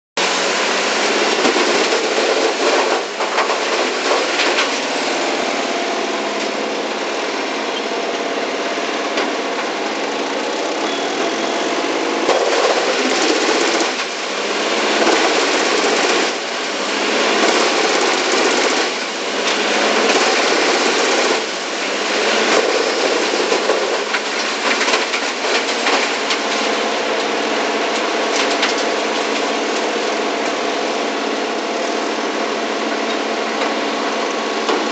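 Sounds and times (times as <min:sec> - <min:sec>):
wood chipper chipping logs: 0:00.2 - 0:34.9.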